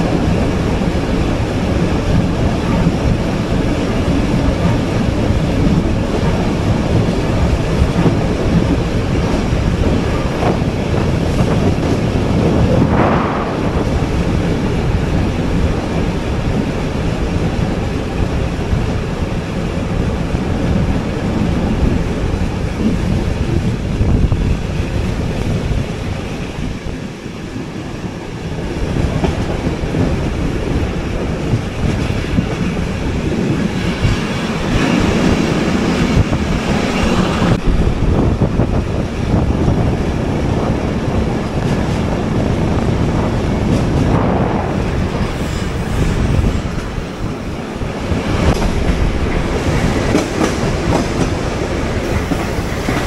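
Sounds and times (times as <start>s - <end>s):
train wheels rumbling on rails: 0.0s - 53.0s.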